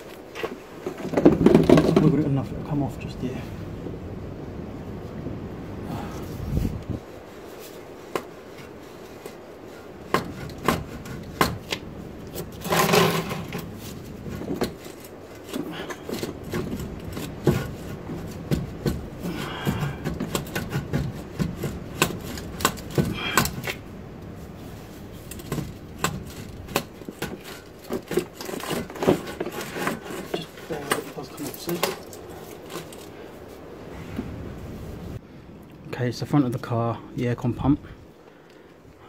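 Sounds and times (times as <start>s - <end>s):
metal grating noise: 12.3s - 23.9s.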